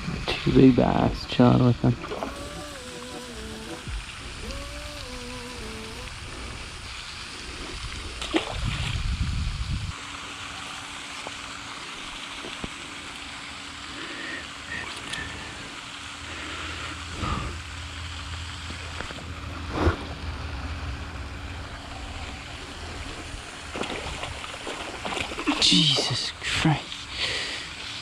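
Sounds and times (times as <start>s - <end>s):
water noise: 0.0s - 28.0s
wind: 0.0s - 28.0s
fish splashing at surface: 2.0s - 9.0s, 21.8s - 26.0s.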